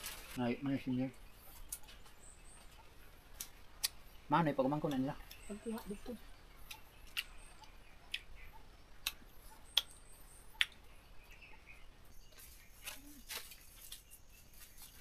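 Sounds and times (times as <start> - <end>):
rustling: 0.0 - 0.4, 12.2 - 15.0.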